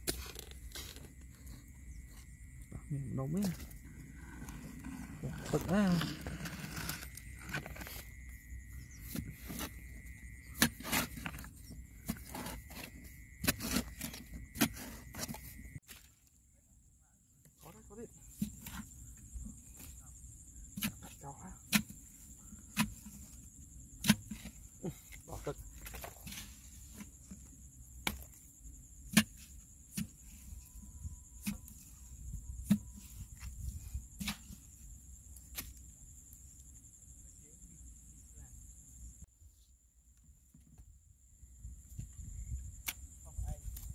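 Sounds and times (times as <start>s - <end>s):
digging tool chopping dry mud: 10.6s - 16.0s, 20.7s - 23.4s, 24.0s - 24.7s, 28.0s - 28.4s, 29.0s - 30.5s, 31.4s - 32.0s, 32.6s - 34.6s.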